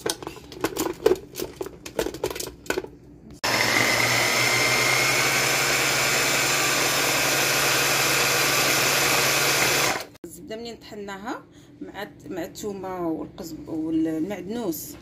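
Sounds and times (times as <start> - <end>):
food chopper motor whining: 3.4 - 10.2.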